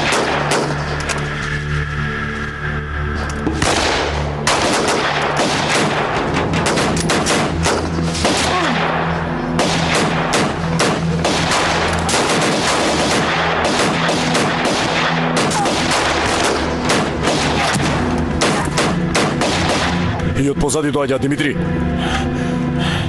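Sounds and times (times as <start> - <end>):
rifle gunfire: 0.0 - 0.9, 3.6 - 20.2
background music: 0.0 - 23.0.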